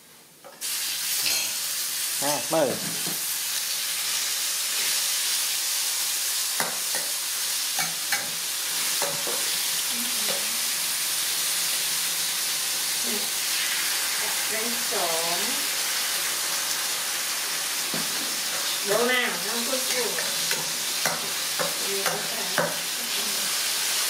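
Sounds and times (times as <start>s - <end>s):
food sizzling in a wok: 0.0s - 24.0s
metal spatula scraping pan: 1.1s - 1.6s.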